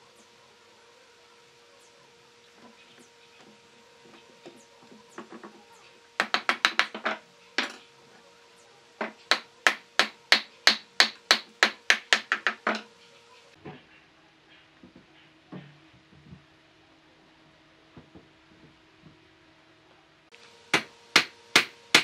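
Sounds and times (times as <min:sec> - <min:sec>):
wooden mallet knocking on wood: 0:06.2 - 0:07.8, 0:09.0 - 0:12.9.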